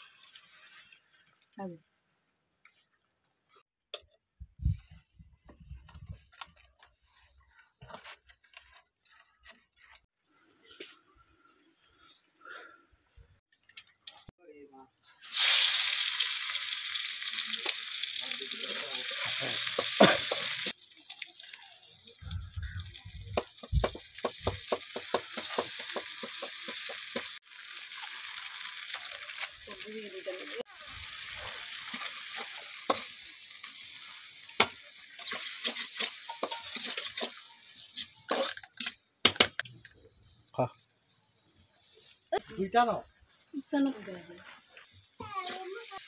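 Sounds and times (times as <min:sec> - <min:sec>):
onions sizzling in hot oil: 0:15.1 - 0:38.9
spatula scraping and knocking pan: 0:23.4 - 0:27.4, 0:34.6 - 0:39.6
metal spatula scraping pot: 0:35.1 - 0:39.0.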